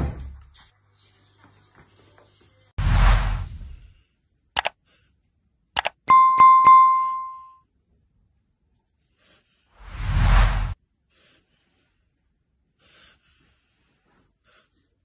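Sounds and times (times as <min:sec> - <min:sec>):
mouse clicks: 0:05.8 - 0:06.0
notification bell chiming: 0:05.8 - 0:07.6
whoosh: 0:09.8 - 0:10.8.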